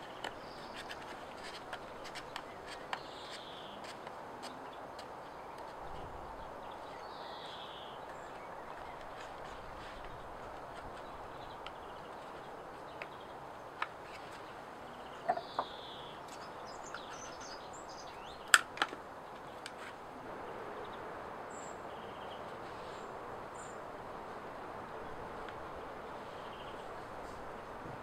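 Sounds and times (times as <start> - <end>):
faint bird chirps: 4.5 - 10.1, 14.0 - 18.5.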